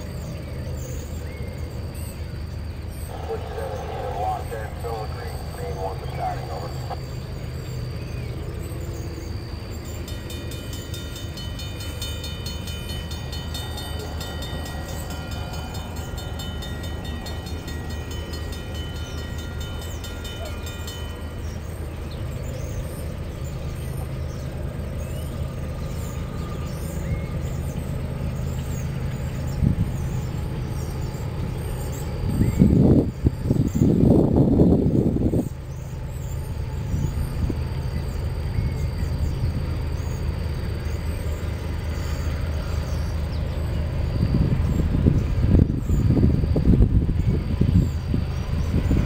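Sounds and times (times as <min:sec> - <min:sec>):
diesel locomotive rumble: 0:00.0 - 0:49.0
rushing bursts: 0:03.1 - 0:07.7
faint even ringing: 0:10.0 - 0:22.2.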